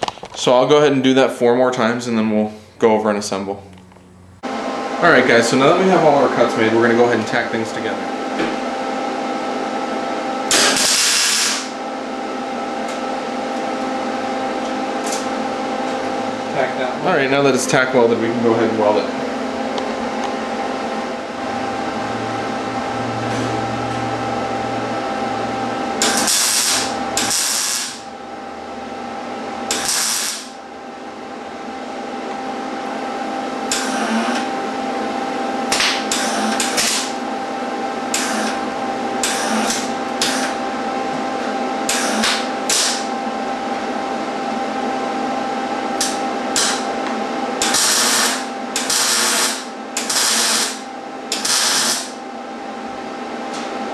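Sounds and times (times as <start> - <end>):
steady shop hum: 0.0 - 53.9
arc welding bursts: 10.5 - 11.8, 26.0 - 28.1, 29.7 - 30.6, 33.7 - 34.3, 36.1 - 37.2, 38.1 - 38.6, 41.9 - 43.1, 46.0 - 46.9, 47.6 - 52.2.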